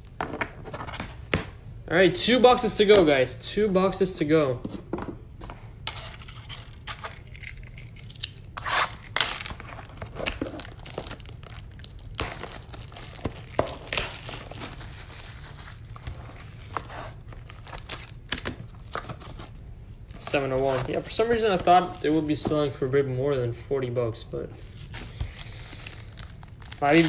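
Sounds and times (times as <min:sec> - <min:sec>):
shrink-wrap tearing and crinkling: 0:07.2 - 0:19.6, 0:24.6 - 0:27.0.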